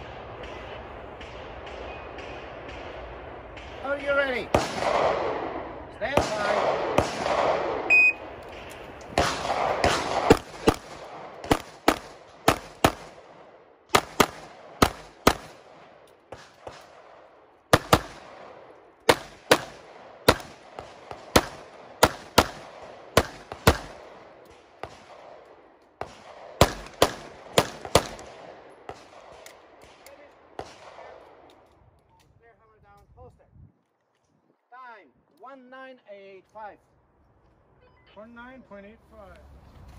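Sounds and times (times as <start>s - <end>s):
pistol shots: 4.4s - 31.6s
shot timer beep: 7.9s - 8.2s.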